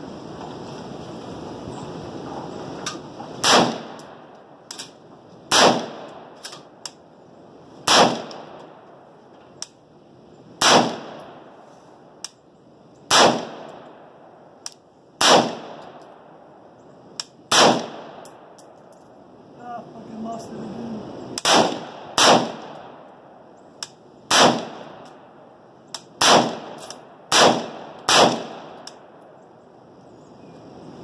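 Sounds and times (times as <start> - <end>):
rifle shots with echo: 3.4 - 4.3, 5.5 - 6.7, 7.8 - 8.8, 10.6 - 11.6, 13.1 - 14.4, 15.2 - 16.4, 17.5 - 18.6, 21.4 - 23.3, 24.3 - 25.3, 26.0 - 29.2
faint sharp cracks: 25.9 - 29.3.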